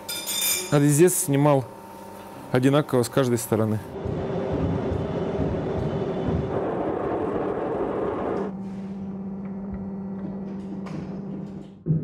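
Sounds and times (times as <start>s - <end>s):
electric hum: 0.0s - 11.8s
machine whirring: 3.7s - 11.8s.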